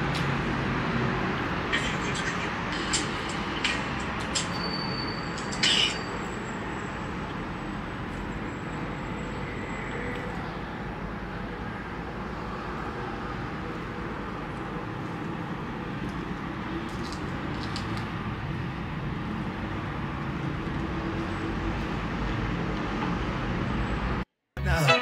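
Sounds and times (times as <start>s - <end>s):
faint high tone: 24.6s - 25.0s.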